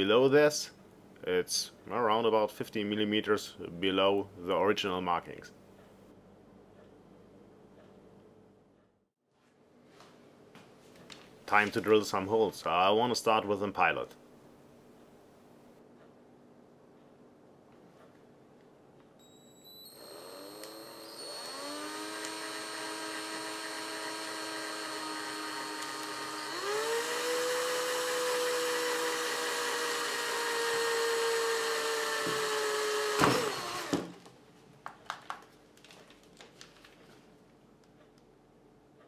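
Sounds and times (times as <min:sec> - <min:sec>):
cordless drill motor whine: 0:19.2 - 0:34.1.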